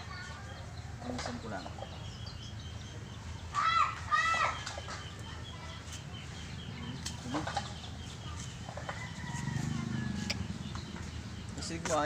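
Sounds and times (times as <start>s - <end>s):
chickens clucking: 0.0s - 12.0s
small birds chirping: 0.0s - 12.0s.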